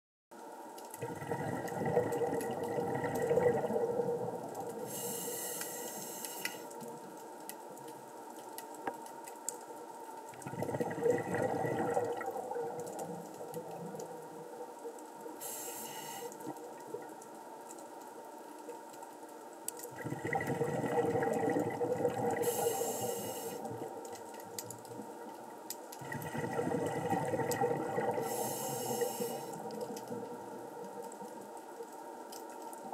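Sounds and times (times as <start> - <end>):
faint clicks: 0.4 - 10.8, 11.8 - 20.4, 21.3 - 26.2, 27.1 - 32.9
exhaled bubbles underwater: 1.0 - 6.2, 10.4 - 17.2, 19.9 - 25.4, 26.0 - 31.6
regulator inhalation hiss: 4.8 - 6.7, 15.4 - 16.4, 22.4 - 23.8, 28.2 - 29.7.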